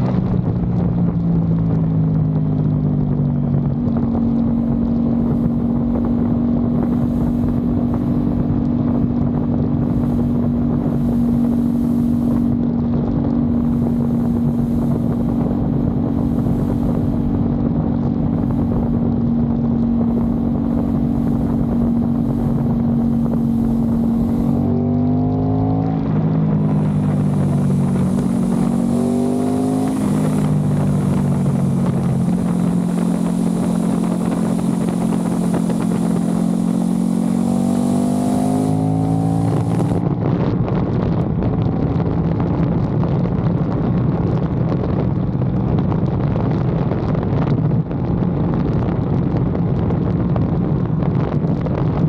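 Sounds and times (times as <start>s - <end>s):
motorcycle engine accelerating: 0.0s - 52.0s
wind buffeting microphone: 0.0s - 52.0s.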